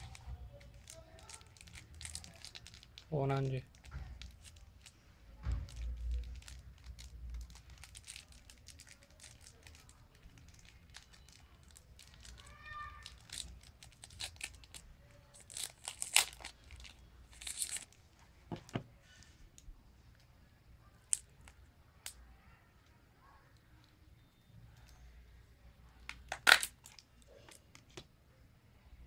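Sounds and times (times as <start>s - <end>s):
plastic wrapping crinkling and tearing: 0.0s - 18.0s, 26.1s - 27.6s.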